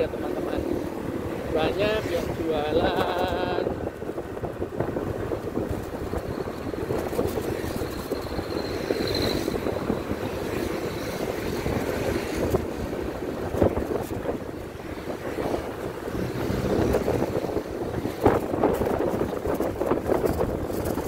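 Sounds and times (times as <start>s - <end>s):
wind buffeting microphone: 0.0s - 21.0s
motorbike engine: 15.9s - 18.3s.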